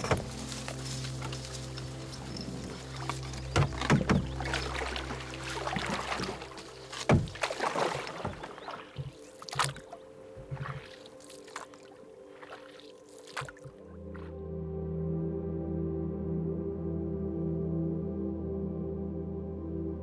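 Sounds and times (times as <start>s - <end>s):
branches brushing against boat: 0.0s - 13.8s
paddle splashing in water: 0.0s - 14.3s
soft drips: 1.7s - 13.9s
paddle knocking on canoe hull: 3.0s - 11.0s.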